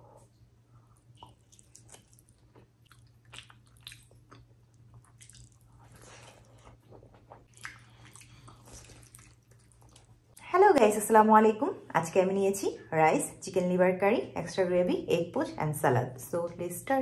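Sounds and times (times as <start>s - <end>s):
wet chewing: 1.0s - 10.4s.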